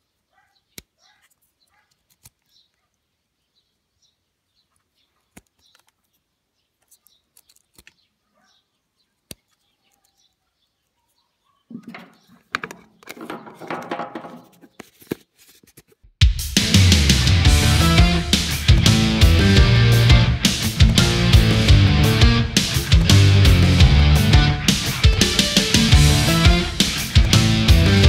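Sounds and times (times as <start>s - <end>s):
plastic parts clicking: 0.8s - 2.6s, 5.3s - 6.2s, 6.8s - 8.1s, 11.7s - 16.0s
plastic rubbing and knocking: 11.7s - 16.2s.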